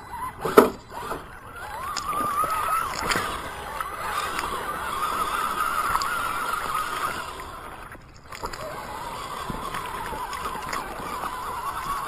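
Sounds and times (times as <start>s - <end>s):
electric motor and gearbox whining: 0.0s - 12.0s
tyres sloshing through water: 0.0s - 12.0s.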